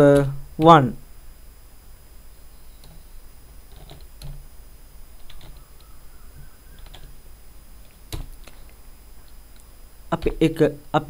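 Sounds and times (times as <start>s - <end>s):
keyboard keystrokes: 3.7s - 4.4s, 5.2s - 5.9s, 6.8s - 7.1s.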